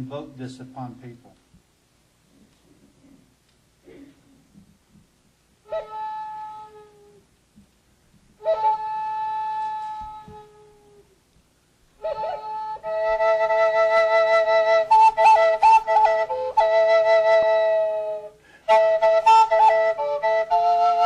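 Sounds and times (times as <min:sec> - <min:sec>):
wooden flute playing: 0:05.6 - 0:07.3, 0:08.4 - 0:11.2, 0:12.0 - 0:21.0.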